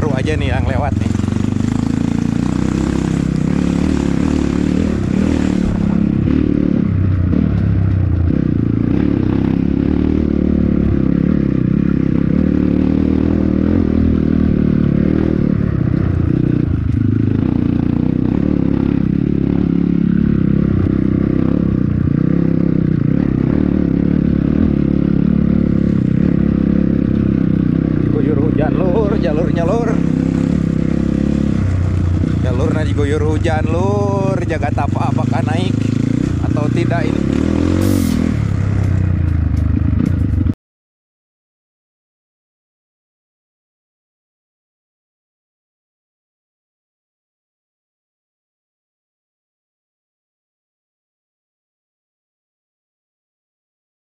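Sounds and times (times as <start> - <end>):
dirt bike engine running: 0.0 - 40.6.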